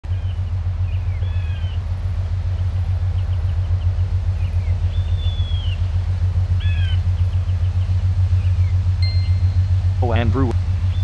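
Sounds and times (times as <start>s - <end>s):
boat engine low rumble: 0.0s - 11.0s
faint high gliding calls: 3.1s - 10.2s.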